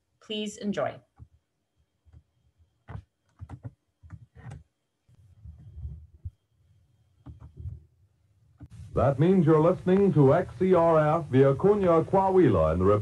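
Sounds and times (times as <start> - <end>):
keyboard clicks and taps: 2.1 - 4.7, 7.2 - 7.8.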